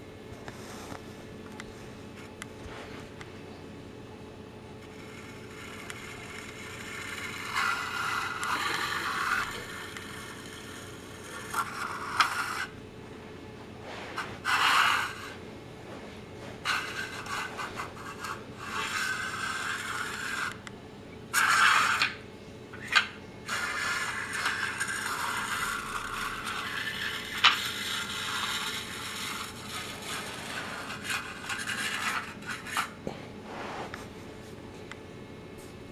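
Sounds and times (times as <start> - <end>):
plastic toy scraping on tiles: 4.9 - 12.7, 14.2 - 15.4, 16.6 - 20.6, 21.3 - 22.2, 22.8 - 33.0.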